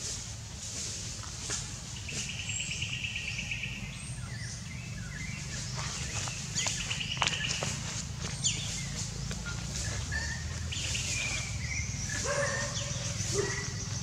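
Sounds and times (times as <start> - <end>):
bird chirps: 4.4 - 14.0.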